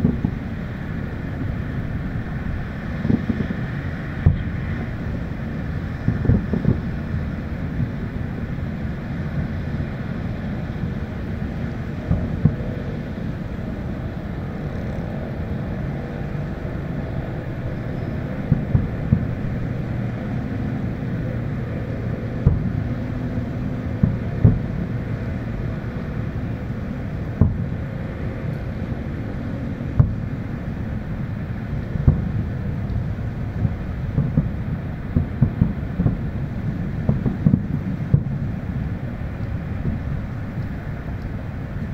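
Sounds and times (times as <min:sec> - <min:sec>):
distant fireworks bangs: 0:00.0 - 0:08.2, 0:12.0 - 0:13.2, 0:17.9 - 0:41.9
steady low rumble: 0:00.0 - 0:41.9.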